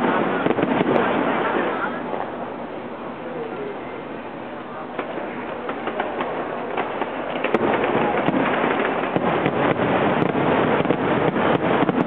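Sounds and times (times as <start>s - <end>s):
fireworks bangs and crackling: 0.0s - 3.2s, 4.0s - 12.0s.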